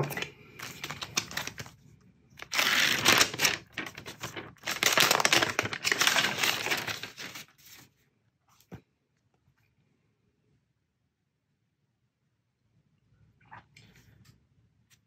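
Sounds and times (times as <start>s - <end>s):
paper wrap peeling and crinkling: 0.0s - 1.8s, 2.4s - 7.9s.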